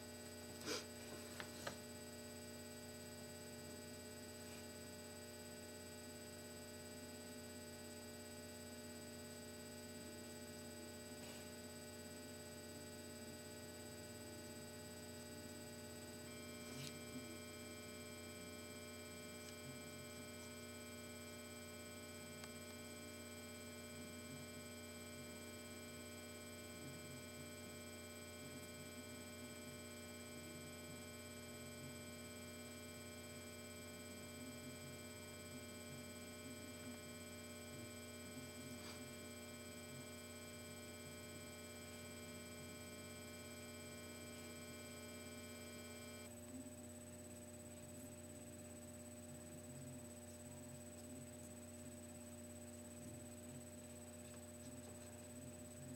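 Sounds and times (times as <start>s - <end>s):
faint mains hum: 0.0s - 55.9s
steady whining tones: 15.9s - 46.3s.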